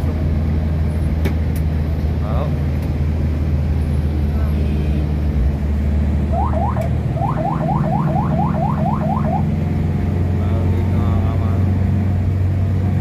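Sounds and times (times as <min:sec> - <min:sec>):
engine and road drone: 0:00.0 - 0:13.0
ambulance siren whoops: 0:06.3 - 0:09.6.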